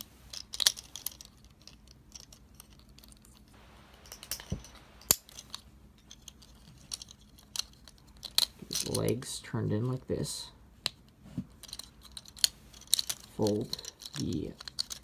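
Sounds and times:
handling rustles: 0.0 - 9.2
plastic toy joints clicking: 11.6 - 15.0.

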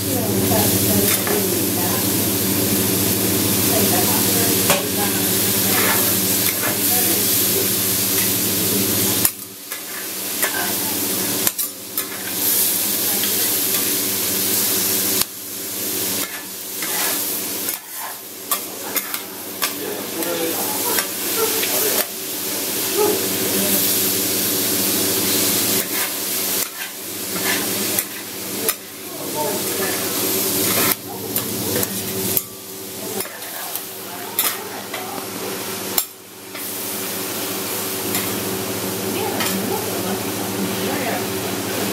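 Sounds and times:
food sizzling on a griddle: 0.0 - 41.9
metal spatulas scraping and clacking: 16.2 - 22.1, 25.8 - 28.9, 34.4 - 35.0.

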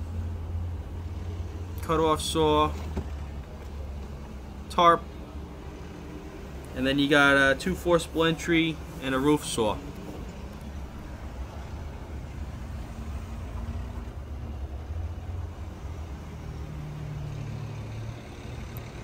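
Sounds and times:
low hum: 9.7 - 18.0.

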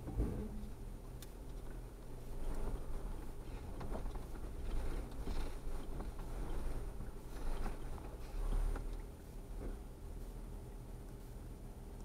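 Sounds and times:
vehicle knocking and rattling: 0.0 - 8.9
vehicle engine rumble: 0.0 - 12.0.

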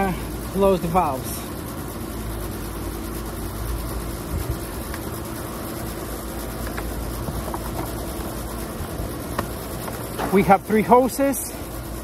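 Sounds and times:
air conditioner unit humming: 0.0 - 12.0.

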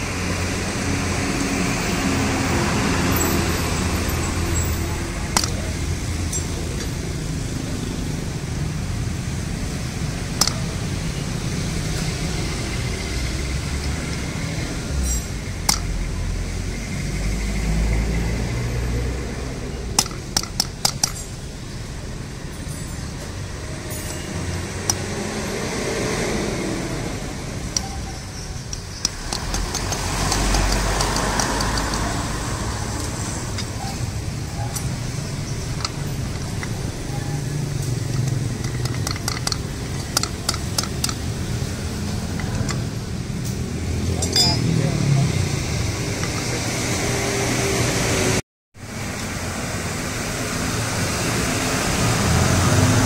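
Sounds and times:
low rumble of road traffic: 0.0 - 53.0
spanner clicking on metal: 10.4 - 10.7, 15.0 - 16.1, 20.0 - 21.4, 27.7 - 32.4, 33.0 - 42.9, 44.2 - 44.7.

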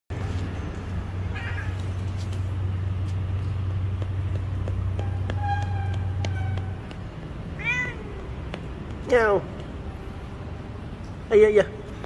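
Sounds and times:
cat meowing: 1.3 - 1.8, 7.6 - 8.2.

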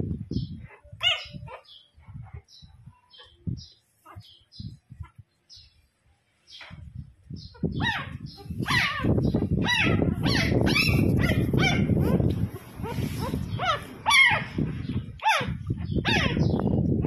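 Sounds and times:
puppy whining and yelping: 0.5 - 2.4, 7.7 - 14.6, 15.2 - 16.5
handling noise on microphone: 10.1 - 14.0.

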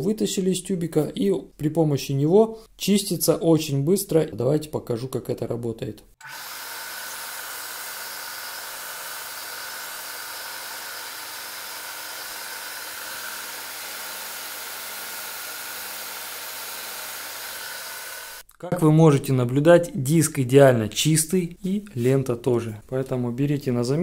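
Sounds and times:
belt and disc sander running: 6.2 - 18.4
silicone grinding on sanding disc: 6.2 - 18.4.

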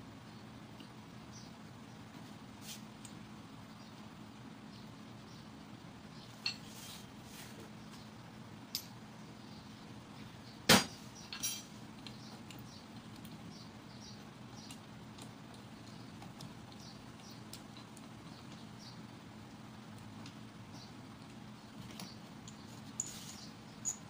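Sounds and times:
metallic clinks and taps: 8.7 - 9.0, 11.3 - 11.7, 22.4 - 24.0.

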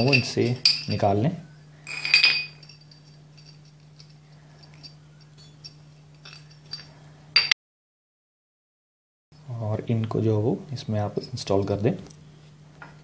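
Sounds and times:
metal parts clinking: 0.0 - 1.1, 1.9 - 7.5.

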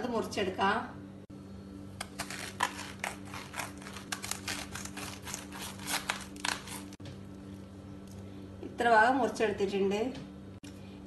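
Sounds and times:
steady low hum: 0.0 - 11.0
knife cutting cabbage: 2.0 - 7.0.

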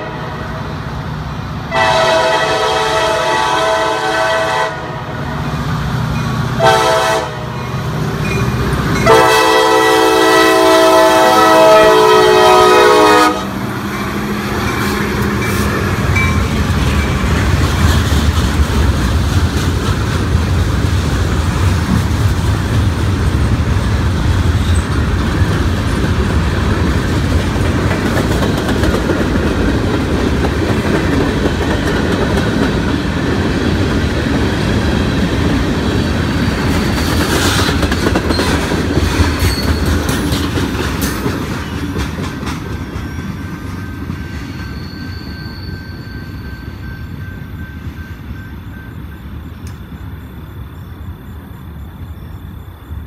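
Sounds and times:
locomotive horn: 0.0 - 0.7, 1.7 - 5.3, 6.6 - 7.6, 9.0 - 14.4
train wheels rumbling on rails: 0.0 - 53.0
wheels clicking over rail joints: 14.5 - 44.9.

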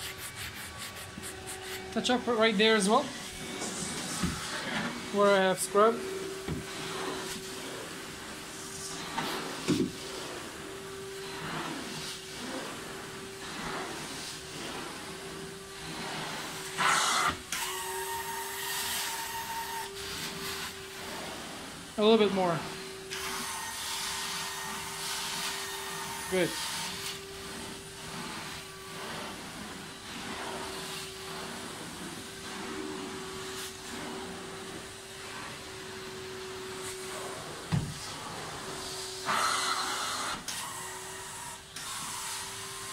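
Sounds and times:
vacuum suction hiss and hum: 0.0 - 17.0
carpet extractor vacuum humming: 0.6 - 42.9.

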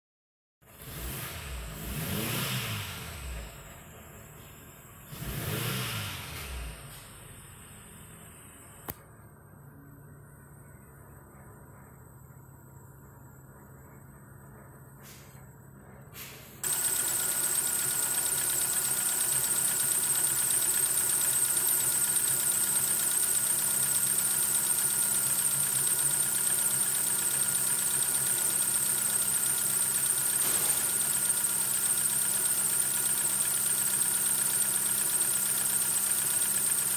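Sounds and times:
petrol engine idling: 16.6 - 36.9.

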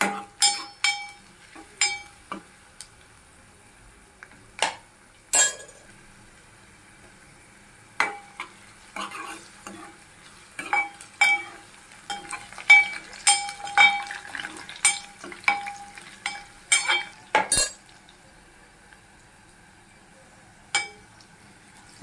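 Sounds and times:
faint sizzle: 0.0 - 22.0
metal spatula scraping a pot: 8.0 - 10.0.

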